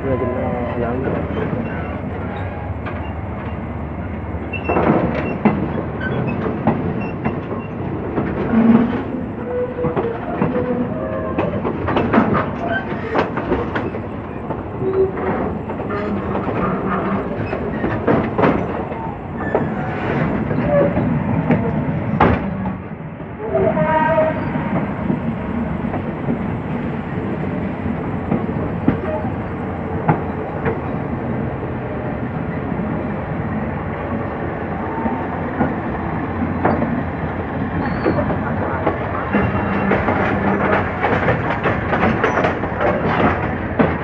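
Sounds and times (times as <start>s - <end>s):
train rumbling on track: 0.0s - 44.0s
wheels clicking over rail joints: 4.5s - 22.8s, 37.8s - 44.0s.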